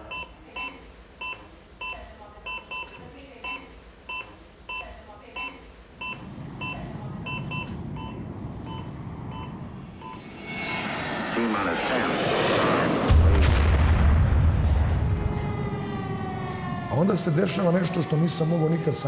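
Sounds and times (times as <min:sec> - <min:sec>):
patient monitor beeping: 0:00.0 - 0:10.2
low rumble: 0:06.6 - 0:16.9.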